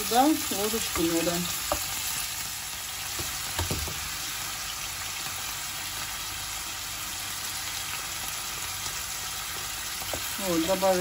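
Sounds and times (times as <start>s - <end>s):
shrimp sizzling in hot oil: 0.0s - 11.0s.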